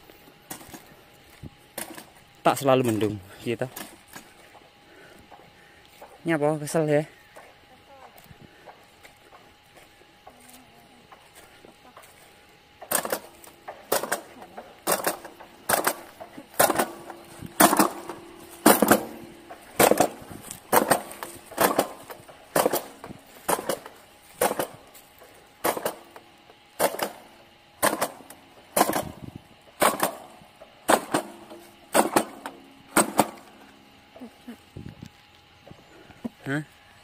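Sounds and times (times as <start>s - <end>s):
planter jaw clacking: 12.8s - 34.3s.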